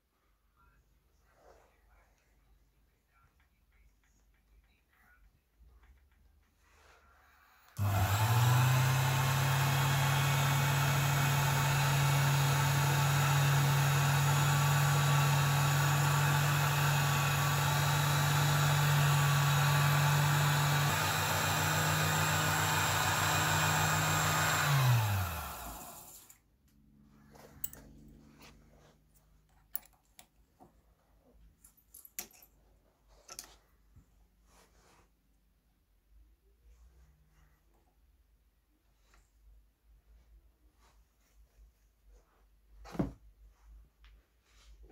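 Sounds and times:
benchtop lathe motor running: 0:07.8 - 0:26.3.

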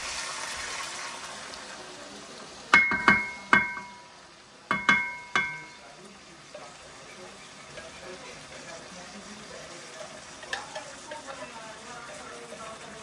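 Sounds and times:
faint frying sizzle: 0:00.0 - 0:13.0
metal utensil knocking on wok: 0:02.8 - 0:04.1, 0:04.7 - 0:05.8.

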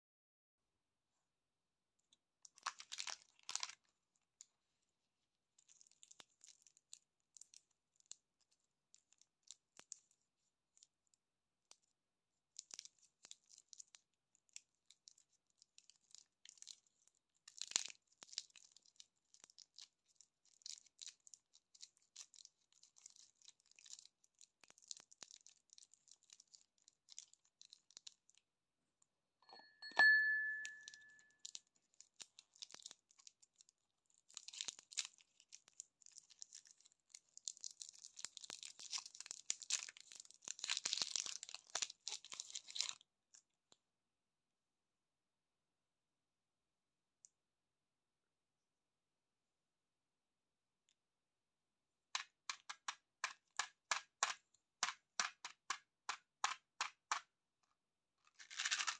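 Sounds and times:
plastic wrapper crinkling: 0:02.4 - 0:04.0, 0:05.6 - 0:10.9, 0:12.5 - 0:28.4, 0:30.9 - 0:43.0, 0:58.2 - 0:58.9.

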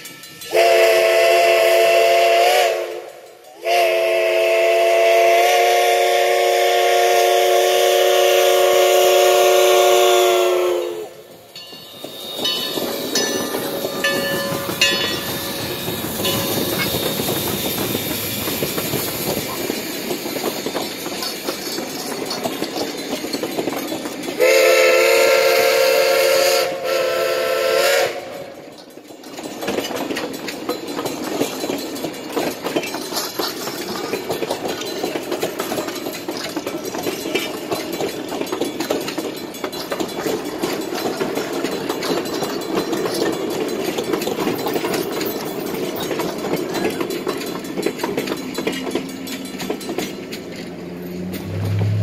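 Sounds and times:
train wheels clicking: 0:00.0 - 0:52.0
steam locomotive whistle: 0:00.4 - 0:11.4, 0:12.0 - 0:18.2, 0:24.4 - 0:28.6.

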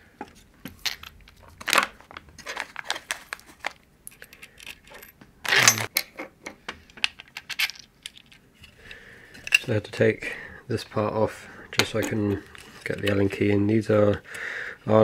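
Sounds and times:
metal screws clinking: 0:04.1 - 0:06.0, 0:07.2 - 0:08.4.

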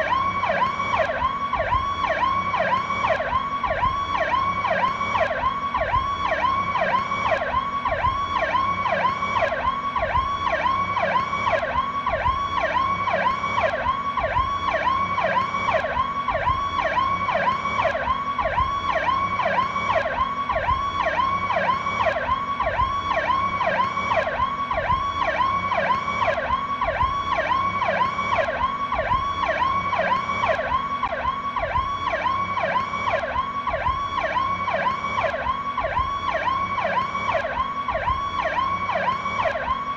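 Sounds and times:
electronic police siren wailing: 0:00.0 - 0:39.9.

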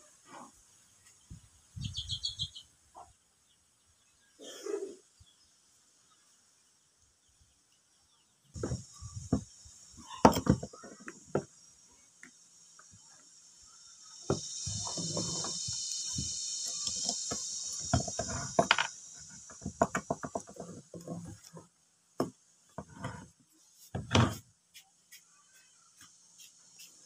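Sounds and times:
high steady buzz: 0:08.6 - 0:21.6
metal parts knocking on table: 0:10.2 - 0:11.5, 0:14.3 - 0:19.0.

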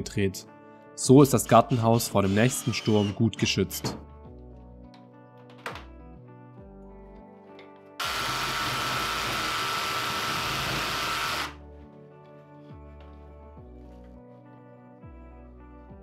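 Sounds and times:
cordless drill driving screw: 0:01.7 - 0:03.2, 0:08.0 - 0:11.6.

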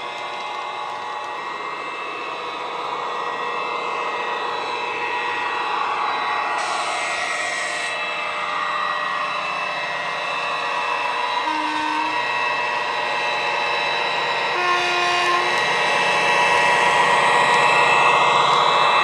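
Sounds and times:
model train motor and wheels: 0:00.0 - 0:19.0
diesel engine sound from speaker: 0:11.4 - 0:12.2, 0:14.5 - 0:15.8.

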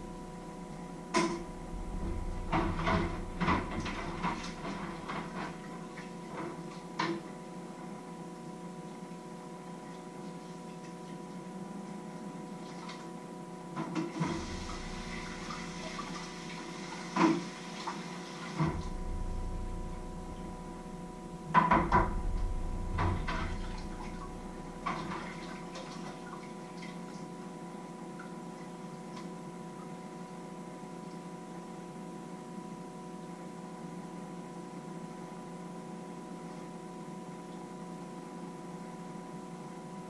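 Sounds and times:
electrical hum: 0:00.0 - 0:40.0
rushing noise: 0:18.8 - 0:25.6.

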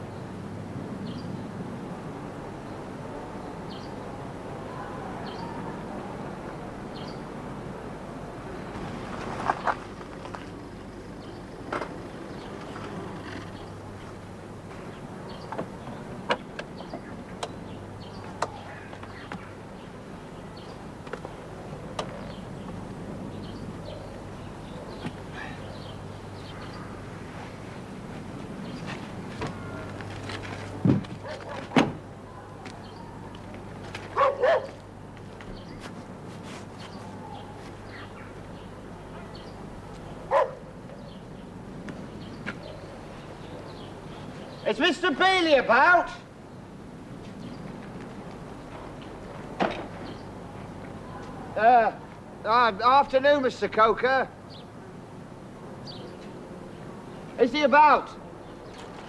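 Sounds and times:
steady background hiss: 0:00.0 - 0:59.0
dog barking: 0:31.2 - 0:31.8, 0:34.2 - 0:34.8, 0:40.3 - 0:40.7.

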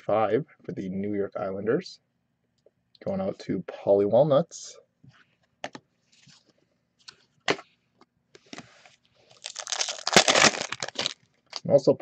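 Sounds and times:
foil wrapper crinkling and tearing: 0:09.3 - 0:11.7.

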